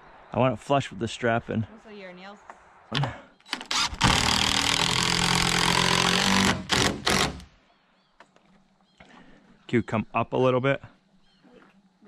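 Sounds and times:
drill driving screw into wood: 3.5s - 7.5s.

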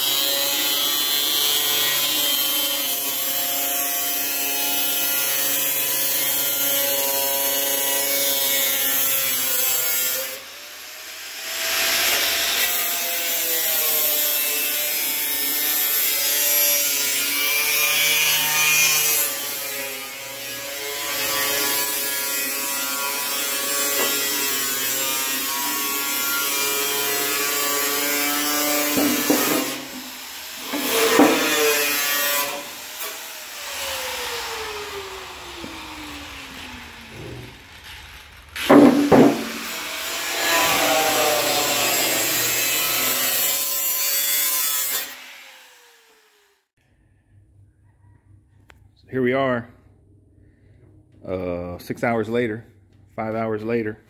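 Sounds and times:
angle grinder cutting steel: 0.0s - 46.7s
sharp knocks: 38.6s - 39.6s.

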